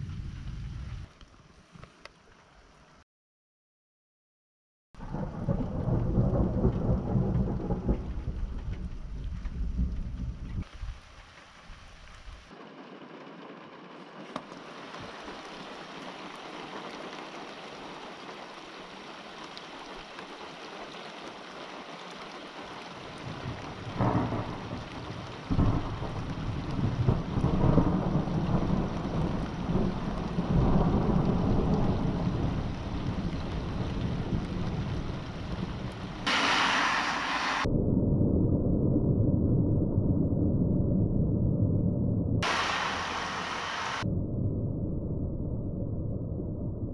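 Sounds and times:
rain hissing: 5.0s - 37.7s, 42.4s - 44.0s
thunder rumbles: 5.0s - 46.9s.

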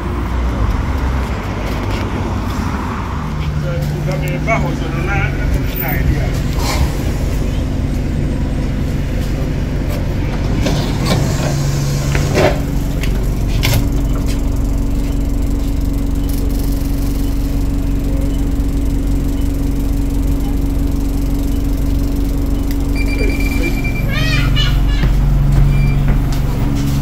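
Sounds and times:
bus diesel engine idling: 0.0s - 27.0s
steady hum: 3.6s - 27.0s.

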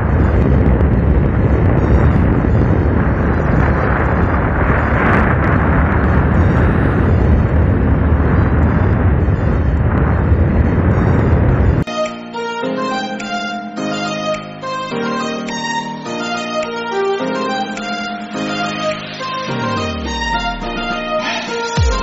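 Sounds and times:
wind buffeting microphone: 0.0s - 11.9s.

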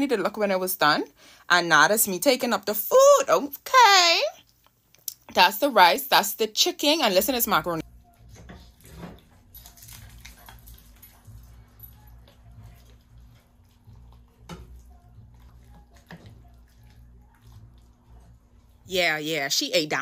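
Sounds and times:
low steady hum: 7.0s - 20.0s.

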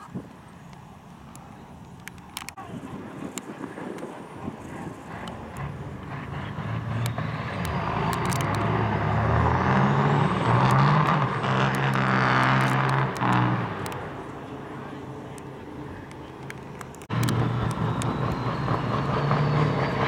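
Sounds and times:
diesel truck engines revving: 0.4s - 20.0s
tires spinning in burnout: 3.6s - 15.6s, 17.1s - 20.0s
faint high whistle: 17.7s - 20.0s.

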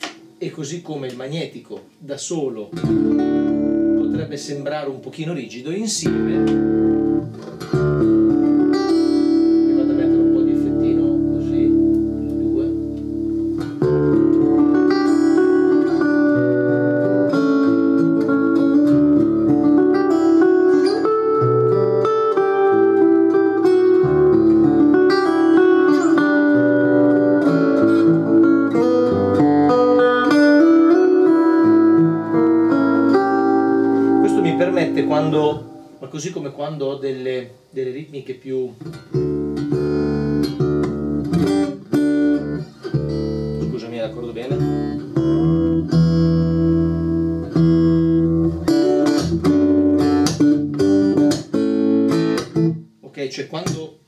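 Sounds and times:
acoustic guitar playing: 0.0s - 0.6s, 2.7s - 37.7s, 38.8s - 53.0s
hand clicking on guitar strings: 6.2s - 7.9s.

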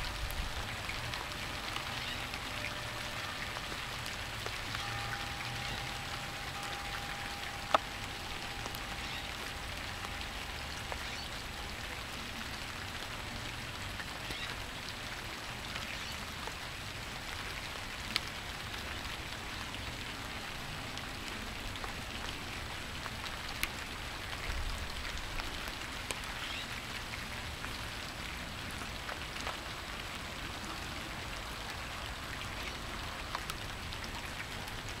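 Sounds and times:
faint steady tone: 0.0s - 13.1s
steady rain falling: 0.0s - 35.0s.

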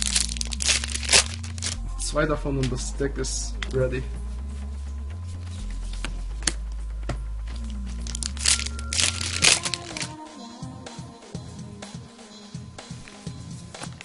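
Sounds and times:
foil wrapper crinkling: 0.0s - 1.8s, 7.6s - 10.2s
background music: 0.0s - 14.0s.

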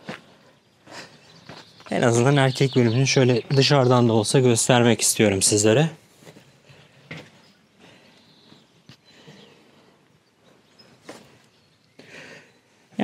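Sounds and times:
faint outdoor background noise: 0.0s - 13.0s.

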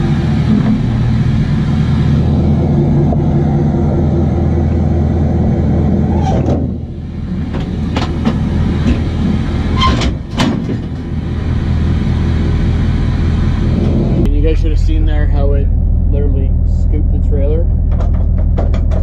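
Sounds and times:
pickup truck engine running: 0.0s - 19.0s
metal clunks and knocks: 6.2s - 11.2s, 17.7s - 19.0s.

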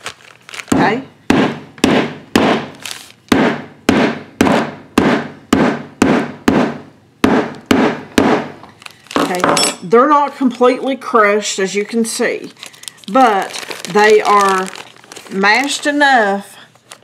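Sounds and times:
metal mallet pounding seed pods: 0.7s - 8.6s.

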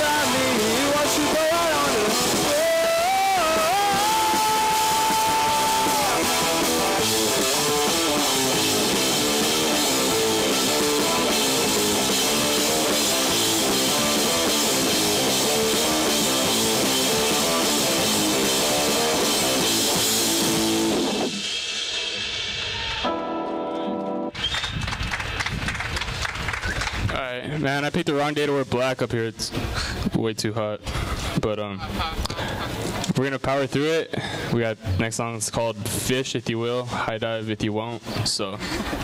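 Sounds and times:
electric guitars: 0.0s - 25.2s
bass guitar: 0.0s - 27.9s, 34.6s - 36.2s
drum kit: 0.0s - 29.9s.

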